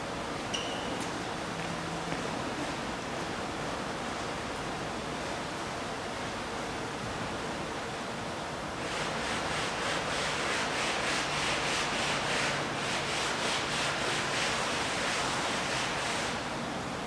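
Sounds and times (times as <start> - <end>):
sponge scrubbing on canvas: 8.8 - 16.4.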